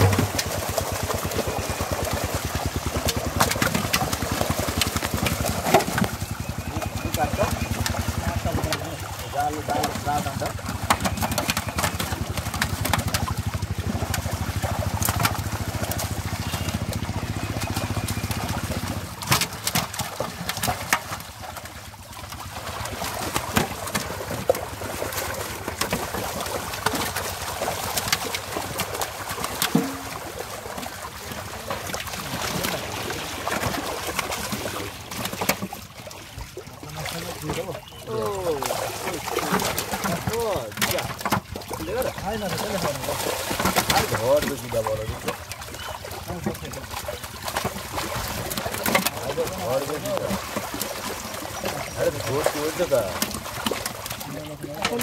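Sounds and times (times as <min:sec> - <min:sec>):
fish splashing in water: 0:00.0 - 0:55.0
low engine hum: 0:12.0 - 0:19.2.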